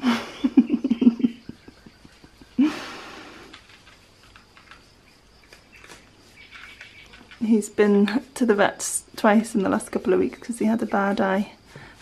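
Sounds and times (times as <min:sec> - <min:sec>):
person laughing: 0:00.0 - 0:03.6.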